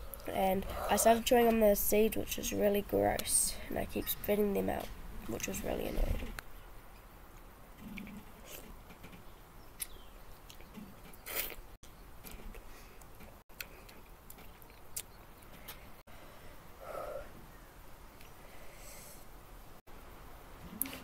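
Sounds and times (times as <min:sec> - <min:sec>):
person chewing and sucking: 0:09.8 - 0:11.6.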